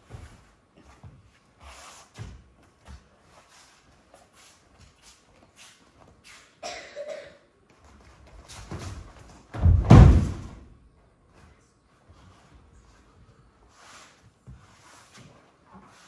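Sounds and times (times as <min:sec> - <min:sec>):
shuffling steps on mat: 0:00.0 - 0:06.5
body thudding on foam mat: 0:08.7 - 0:10.7.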